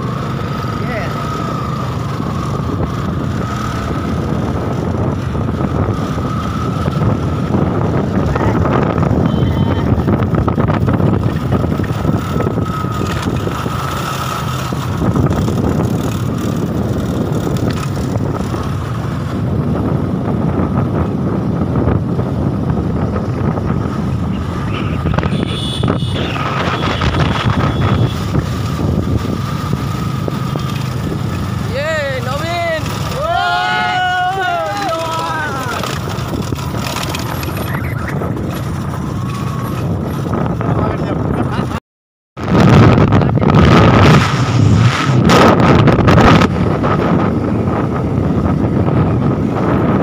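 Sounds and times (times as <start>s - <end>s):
motorcycle engine running: 0.0s - 41.7s
wind buffeting microphone: 0.0s - 41.8s, 42.4s - 50.0s.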